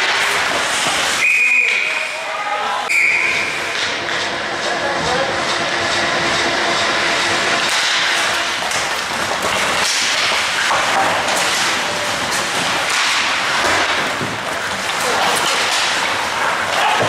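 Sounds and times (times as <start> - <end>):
skates scraping ice: 0.0 - 2.4, 7.0 - 17.0
hockey sticks clacking: 0.0 - 5.7, 6.3 - 17.0.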